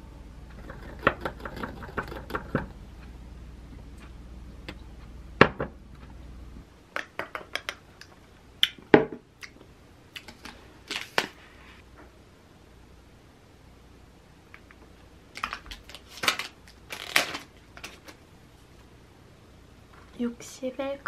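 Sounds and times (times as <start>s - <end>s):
plastic snack packet crinkling: 10.2s - 11.4s, 15.3s - 18.2s.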